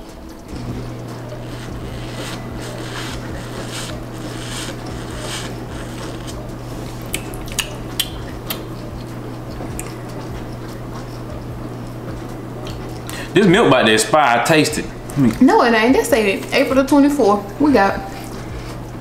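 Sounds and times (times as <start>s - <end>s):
milk slurping through straw: 0.8s - 7.8s.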